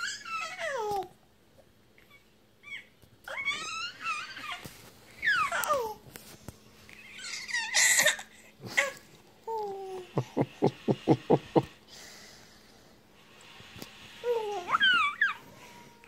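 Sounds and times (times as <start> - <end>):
baby laughing: 9.9 - 11.7.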